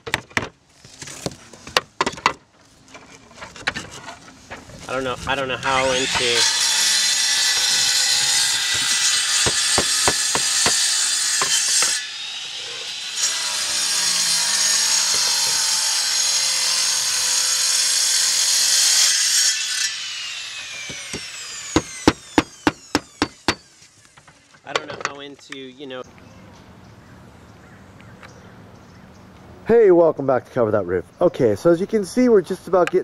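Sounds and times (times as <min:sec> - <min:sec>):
power saw grinding: 0:04.9 - 0:24.0.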